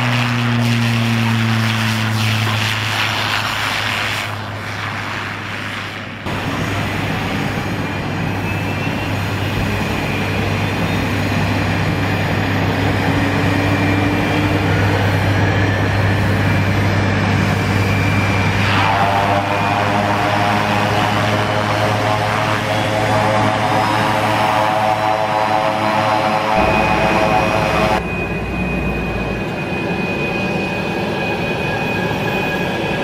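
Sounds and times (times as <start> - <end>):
high turbine whine: 0.0 - 33.0
propeller drone: 0.0 - 33.0.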